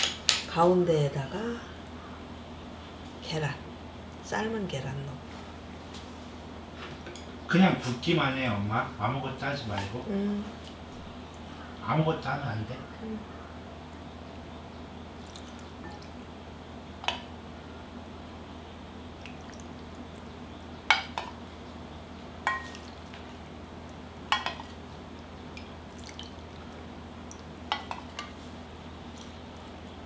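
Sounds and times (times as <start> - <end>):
broth dripping and pouring: 15.1 - 16.3, 19.1 - 20.5, 22.6 - 30.0
ladle clinking on ceramic bowls: 22.4 - 22.9, 24.3 - 24.8.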